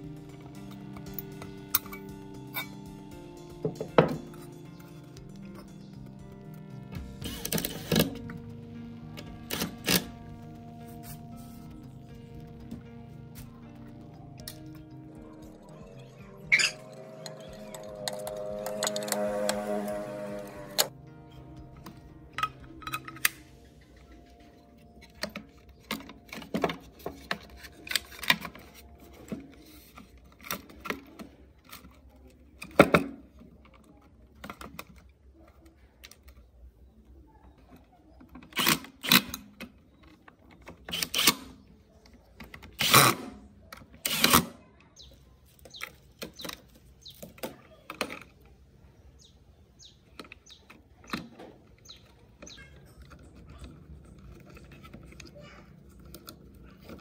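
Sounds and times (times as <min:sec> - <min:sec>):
clicks and knocks of parts handled: 0:21.8 - 0:36.6, 0:50.0 - 0:57.0.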